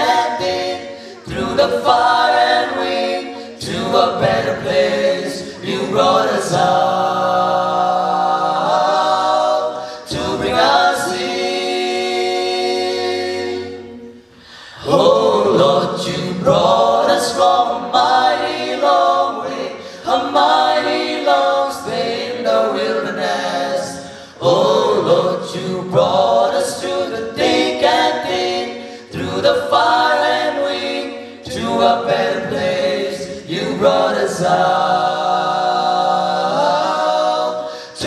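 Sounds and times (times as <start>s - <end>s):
men singing in close harmony: 14.9s - 38.0s.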